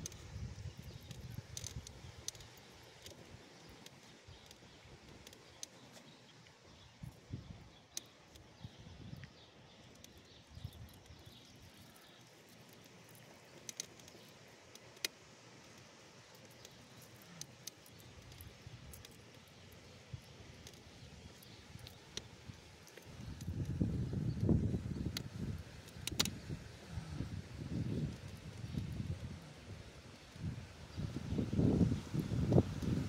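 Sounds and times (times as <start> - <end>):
small clicks: 0.0 - 7.2, 7.8 - 26.5.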